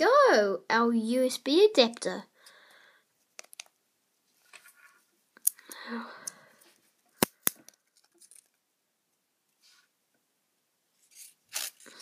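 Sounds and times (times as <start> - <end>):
sharp plastic clicks: 7.2 - 7.8.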